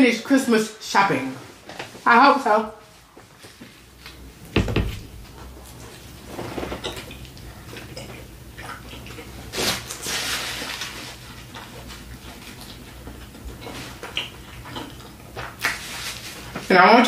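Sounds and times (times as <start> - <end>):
thump: 4.6 - 5.0
chewing food: 6.8 - 16.6
paper napkin rustling: 9.5 - 12.5, 15.6 - 16.8.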